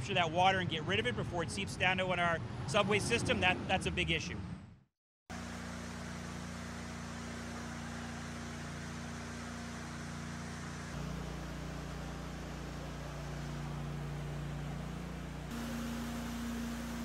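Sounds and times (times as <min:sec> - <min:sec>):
machine hum with low drone: 0:05.3 - 0:17.0.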